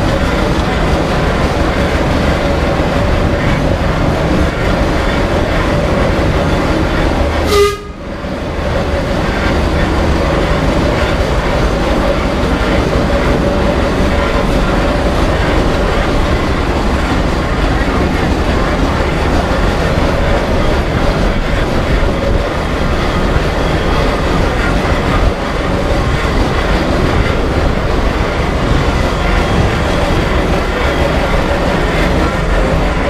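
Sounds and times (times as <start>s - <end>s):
carriage rumble and clatter: 8.3s - 33.0s.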